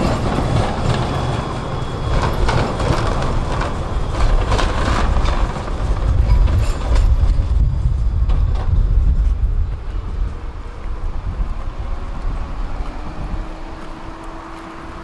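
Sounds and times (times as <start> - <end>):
low tram rumble: 0.0 - 15.0
tram wheels clacking over rails: 0.0 - 15.0.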